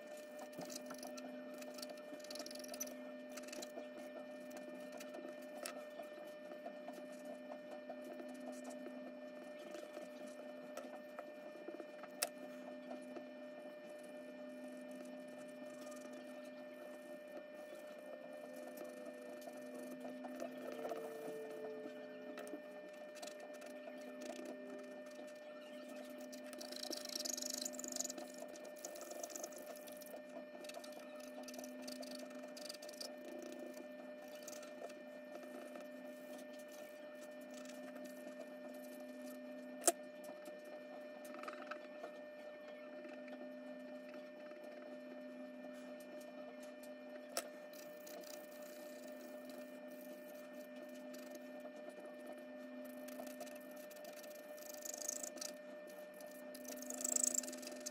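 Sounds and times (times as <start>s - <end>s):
faint steady hum: 0.0s - 57.9s
charcoal pencil scratching on paper: 17.8s - 21.6s, 47.7s - 57.9s.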